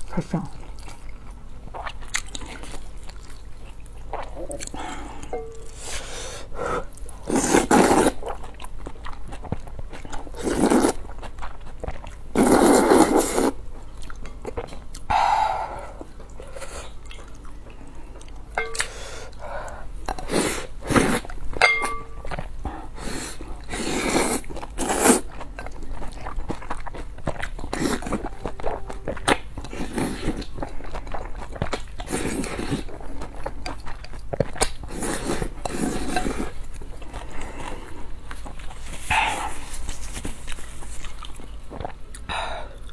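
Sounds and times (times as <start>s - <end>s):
quiet chewing: 0.0s - 42.9s
loud noodle slurps: 7.3s - 8.2s, 10.4s - 11.0s, 12.4s - 13.6s, 23.1s - 25.2s.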